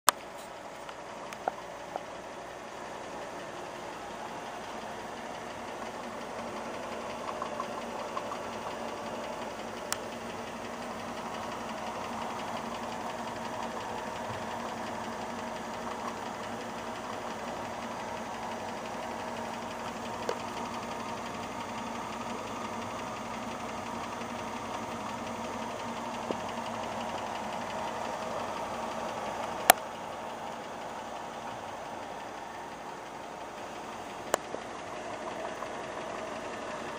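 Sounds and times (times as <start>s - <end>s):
model steam engine running: 0.2s - 36.9s
faint ticks: 7.1s - 10.2s.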